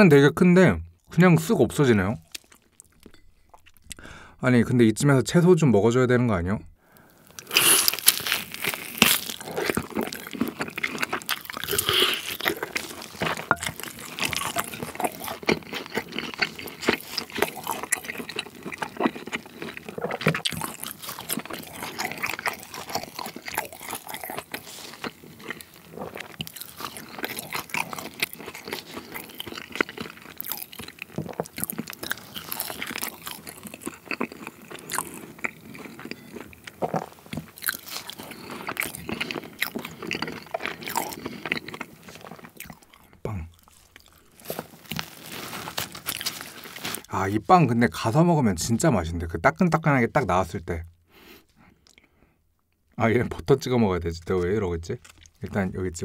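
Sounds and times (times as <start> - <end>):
wet biting and chewing: 7.2 - 47.1, 55.0 - 55.4.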